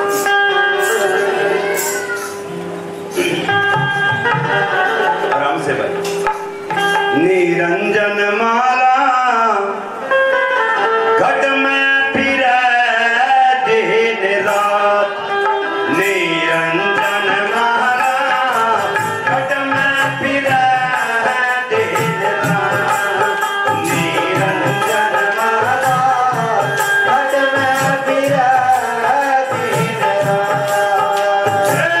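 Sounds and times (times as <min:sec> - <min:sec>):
person singing: 0:00.0 - 0:02.5, 0:07.0 - 0:32.0
plucked string instrument: 0:00.0 - 0:08.6.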